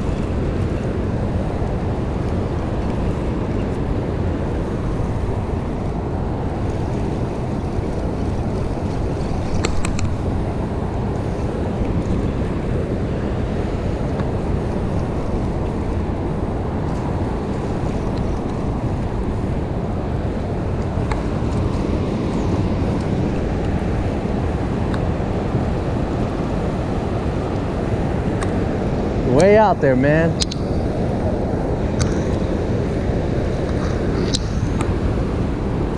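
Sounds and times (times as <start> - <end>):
wind buffeting microphone: 0.0 - 35.9
water rushing through dam gates: 28.0 - 35.9.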